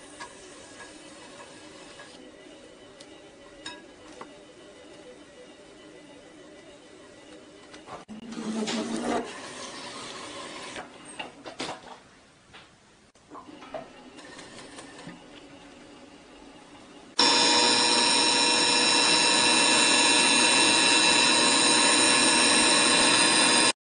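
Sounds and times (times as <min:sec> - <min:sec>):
grinding whine of sharpener: 0:17.2 - 0:23.8.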